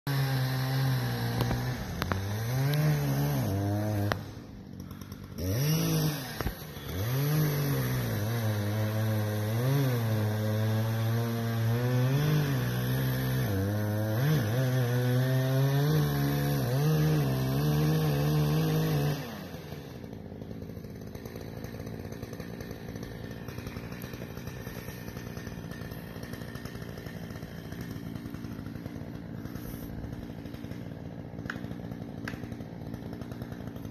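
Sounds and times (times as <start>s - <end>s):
chainsaw cutting tree trunk: 0.1s - 33.9s.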